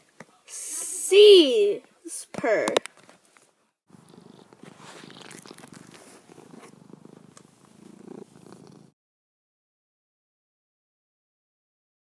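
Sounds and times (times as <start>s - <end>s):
cat purring: 3.9s - 9.0s.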